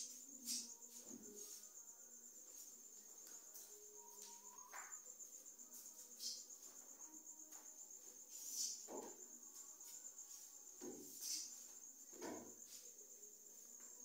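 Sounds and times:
crickets trilling: 0.0s - 14.0s.

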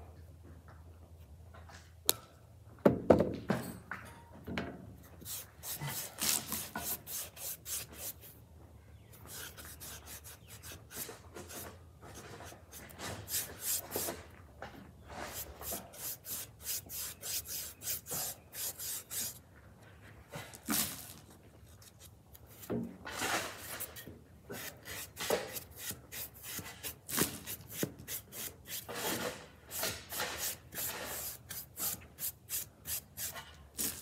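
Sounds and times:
foam brush scratching strokes: 5.2s - 8.4s, 9.2s - 14.2s, 15.1s - 19.4s, 21.9s - 34.0s.

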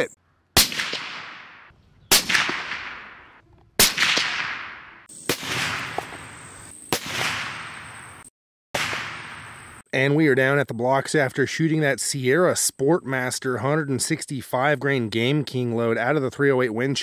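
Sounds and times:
rifle shots with echo: 0.6s - 6.3s, 6.9s - 8.0s, 8.8s - 9.6s.

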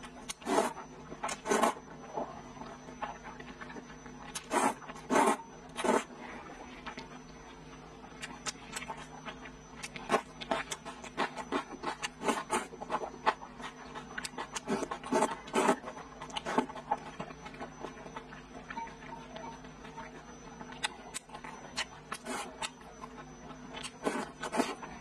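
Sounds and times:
wet chewing and lip-smacking: 0.1s - 25.0s
slurping noodles: 4.4s - 6.1s.

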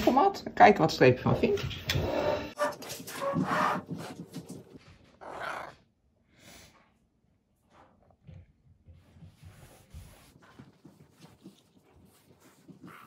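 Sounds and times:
cat sniffing: 9.3s - 13.0s.

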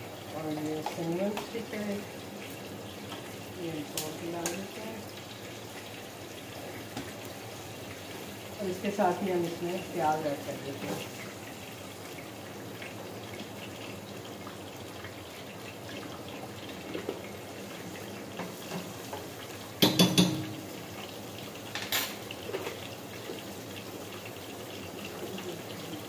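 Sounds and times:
onions sizzling in hot oil: 0.0s - 26.0s
spoon clinking on cookware: 19.8s - 20.6s.

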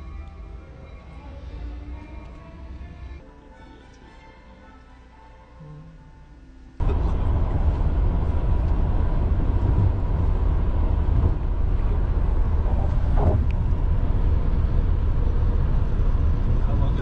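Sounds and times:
vehicle rumble: 6.8s - 17.0s.

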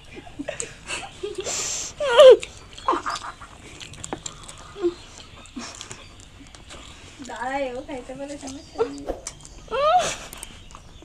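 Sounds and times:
heavy breathing through nose: 0.7s - 2.8s, 3.4s - 7.3s
slurping and smacking: 2.4s - 7.0s.

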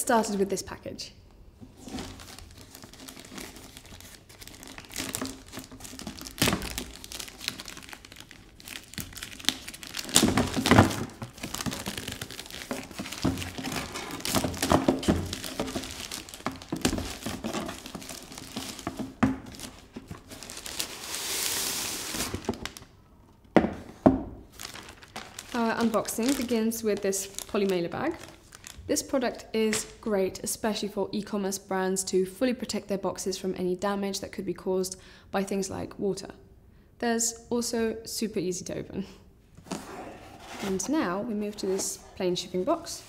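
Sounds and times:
plastic mailer bag crinkling: 1.8s - 22.9s, 24.5s - 29.0s.

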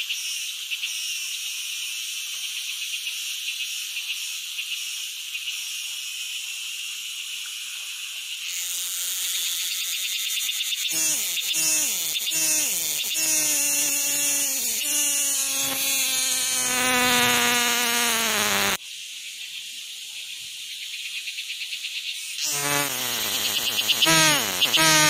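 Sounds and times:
flying insects buzzing: 8.5s - 18.8s, 22.4s - 25.0s
thin high hiss: 8.6s - 18.8s, 22.4s - 25.0s.

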